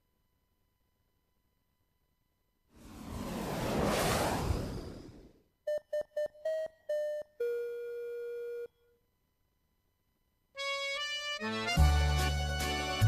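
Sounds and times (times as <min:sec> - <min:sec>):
music: 0:10.5 - 0:13.0.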